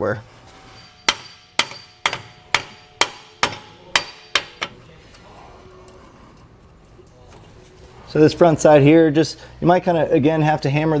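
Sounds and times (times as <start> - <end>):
hammer striking metal bracket: 0.8 - 4.8.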